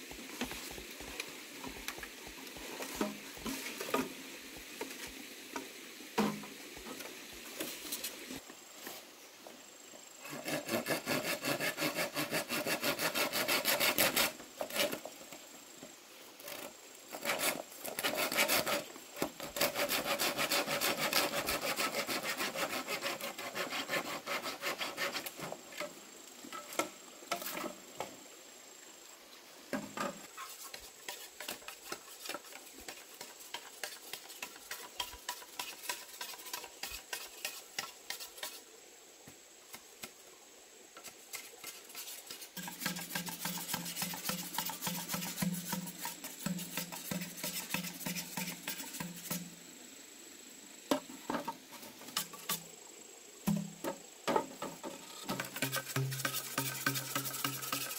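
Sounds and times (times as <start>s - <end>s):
hand saw cutting wood: 10.2s - 15.1s, 16.5s - 25.6s, 30.4s - 38.6s, 41.3s - 49.4s, 55.2s - 57.9s.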